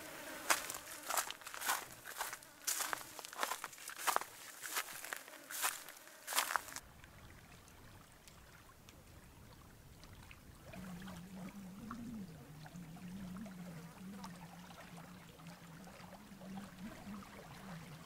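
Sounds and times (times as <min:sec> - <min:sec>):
faint outdoor ambience: 0:00.0 - 0:18.0
small ticks: 0:00.4 - 0:06.8.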